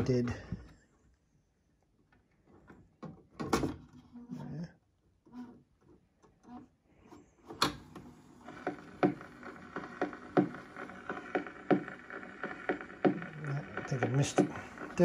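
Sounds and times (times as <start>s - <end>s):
record player clunk: 7.6s - 15.0s
record player motor knocking: 7.7s - 15.0s.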